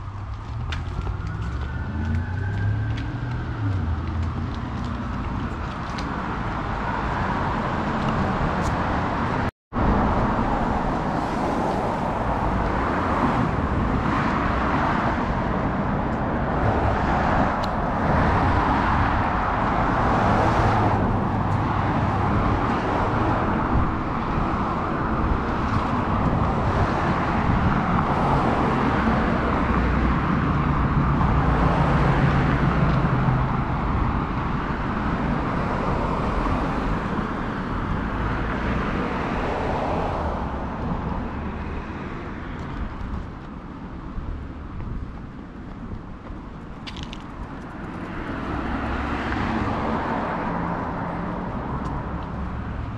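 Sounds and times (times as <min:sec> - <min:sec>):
cars passing: 0:00.0 - 0:52.9
steady roadway hum: 0:00.0 - 0:52.9.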